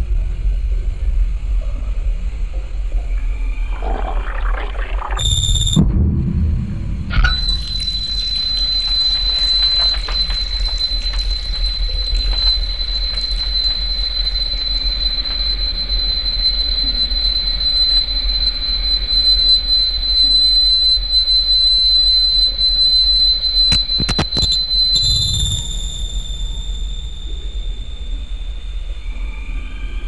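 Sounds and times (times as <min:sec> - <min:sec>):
shrill high-pitched whine: 0:03.2 - 0:30.0
heavy low hum: 0:03.6 - 0:09.5
sharp clicks: 0:23.7 - 0:25.4.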